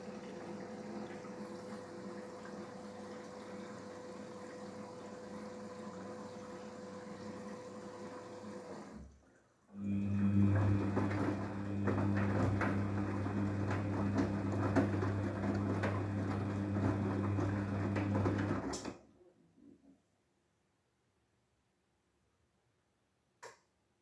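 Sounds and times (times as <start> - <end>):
water running in: 0.0 - 9.0, 9.8 - 18.7
washing machine motor hum: 0.0 - 9.1, 9.7 - 18.9
laundry splashing in drum: 10.2 - 18.7.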